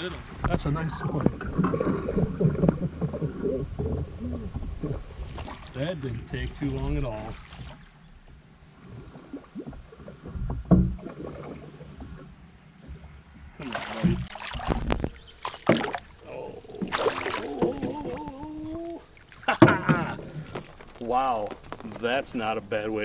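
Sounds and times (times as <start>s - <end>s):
fish splashing beside boat: 4.7s - 5.8s, 7.2s - 8.0s, 13.6s - 16.2s, 16.8s - 22.1s
knocks on boat: 10.3s - 11.0s, 19.6s - 20.2s.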